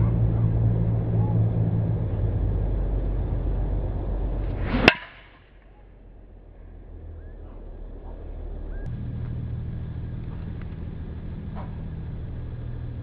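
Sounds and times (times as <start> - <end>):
low rumble: 0.0 - 13.0
golf club whoosh: 4.4 - 5.3
golf ball struck with crack: 4.4 - 5.4.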